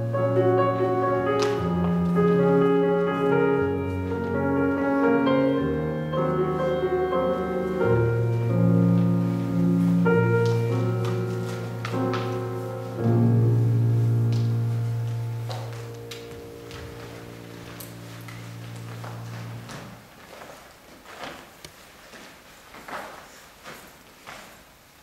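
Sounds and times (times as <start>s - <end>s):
slow instrumental music: 0.0s - 20.0s.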